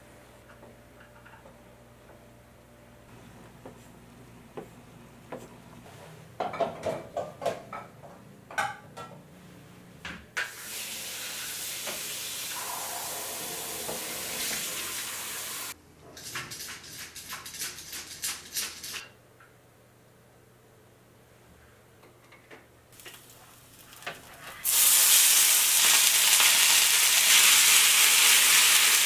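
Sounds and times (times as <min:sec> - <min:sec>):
steady hiss: 0:10.4 - 0:15.8.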